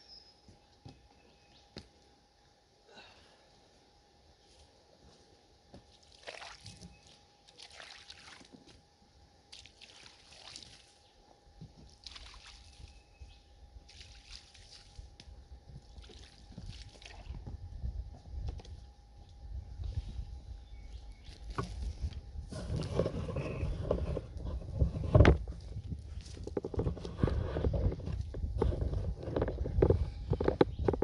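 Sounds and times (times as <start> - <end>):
water splashing onto wood: 6.0 - 8.7, 9.5 - 11.0, 11.8 - 12.9, 13.8 - 15.1.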